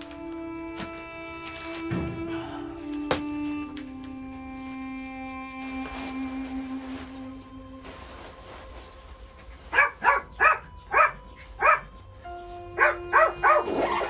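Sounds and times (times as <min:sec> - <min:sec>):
soft background music: 0:00.0 - 0:14.0
dog barking: 0:09.7 - 0:12.0, 0:12.8 - 0:14.0.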